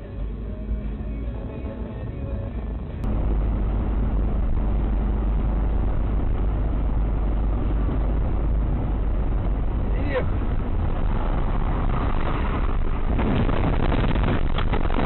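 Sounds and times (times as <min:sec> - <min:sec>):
music: 0:00.0 - 0:03.1
car road and engine rumble: 0:00.0 - 0:15.0.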